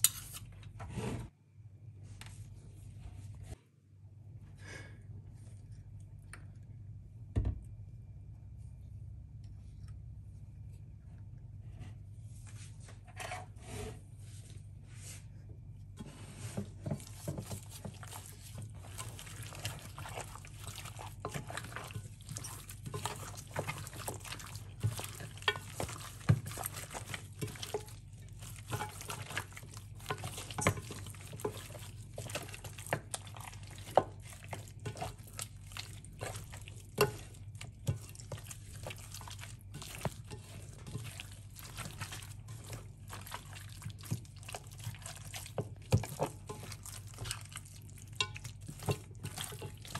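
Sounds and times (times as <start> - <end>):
wet squishing of meat: 16.6 - 49.9.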